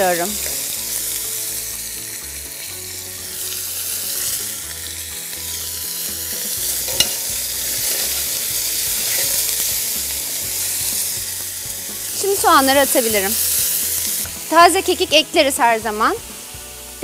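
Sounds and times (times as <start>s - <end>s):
meat sizzling in a pot: 0.0s - 17.0s
metal utensil stirring: 6.3s - 10.5s
utensil clinking on pot: 6.8s - 8.2s, 9.0s - 9.6s.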